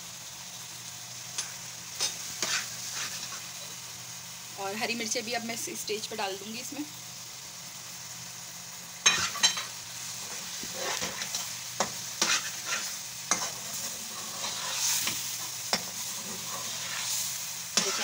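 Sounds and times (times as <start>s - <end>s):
food sizzling in oil: 0.0s - 18.0s
metal spatula scraping metal pot: 10.6s - 11.4s, 12.2s - 17.2s, 17.8s - 18.0s.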